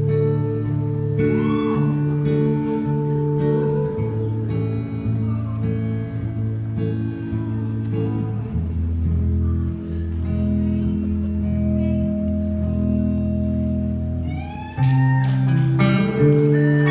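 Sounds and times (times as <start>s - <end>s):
electric guitar chords: 0.0s - 16.9s
audience whooping and cheering: 1.2s - 2.2s, 14.2s - 16.9s.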